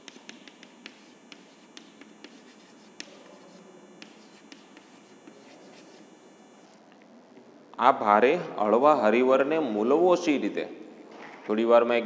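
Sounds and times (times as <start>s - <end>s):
chalk writing on blackboard: 0.0s - 6.7s.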